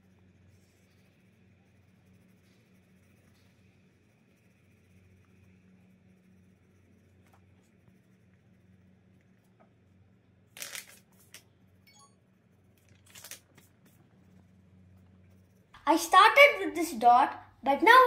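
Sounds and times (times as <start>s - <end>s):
faint low hum: 0.0s - 18.0s
paper sheets rustling: 10.6s - 11.4s, 12.9s - 14.0s.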